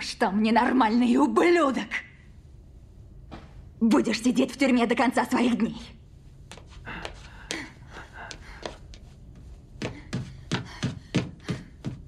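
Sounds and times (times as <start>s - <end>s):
footsteps climbing stairs: 9.8s - 12.0s.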